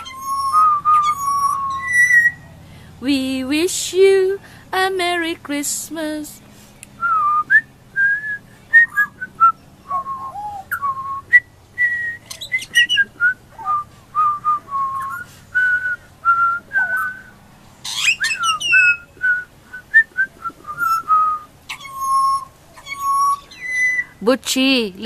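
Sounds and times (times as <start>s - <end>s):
bird singing whistled notes: 0.0s - 2.5s, 7.0s - 24.8s.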